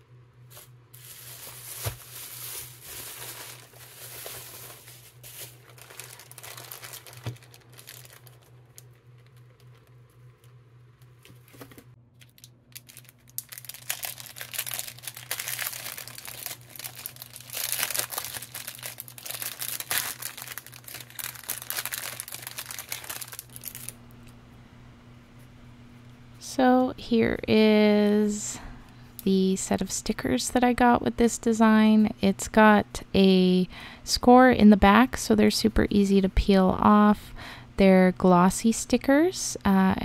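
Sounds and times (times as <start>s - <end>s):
plastic packaging crinkling: 0.5s - 24.0s.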